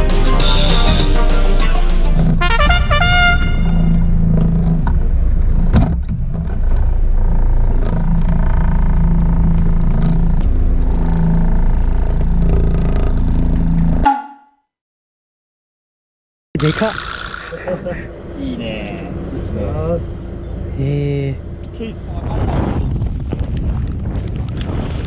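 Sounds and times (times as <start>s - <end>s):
boat engine humming: 0.5s - 14.4s, 17.3s - 21.8s
sharp knock: 14.1s - 14.5s
wind rumble on microphone: 22.1s - 25.0s.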